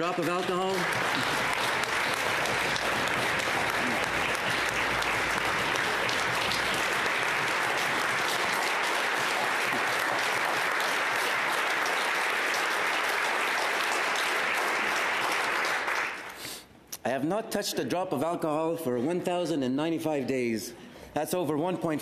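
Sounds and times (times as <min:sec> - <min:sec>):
crowd applause: 0:00.0 - 0:16.4.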